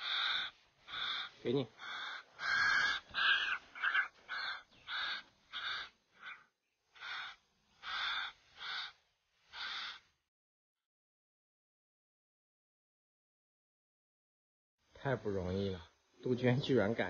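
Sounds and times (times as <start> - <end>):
young cuckoo begging calls: 0.0 - 9.0, 9.6 - 10.1.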